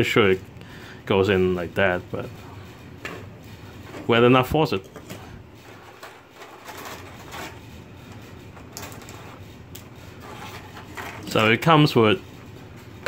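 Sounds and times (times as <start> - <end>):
plastic rustling and clicking: 4.8 - 11.6.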